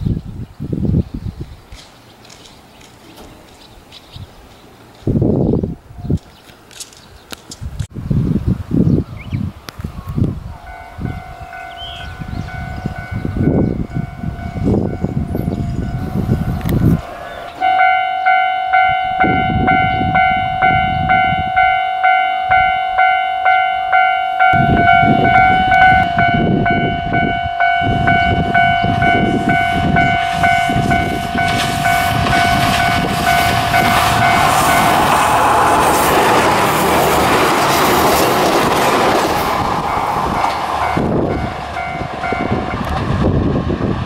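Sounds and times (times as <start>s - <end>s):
low gusting wind noise: 0.0s - 44.0s
diesel railcar running: 8.6s - 44.0s
level-crossing alarm bell ringing: 10.7s - 35.6s, 39.9s - 42.8s.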